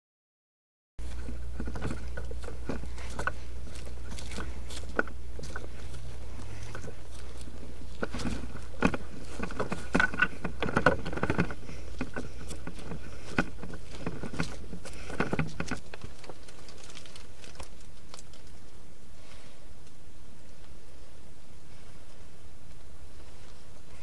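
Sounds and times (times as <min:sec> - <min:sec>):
clothing and gear rustling: 0:01.0 - 0:19.6
dry leaves crunching underfoot: 0:01.0 - 0:19.6.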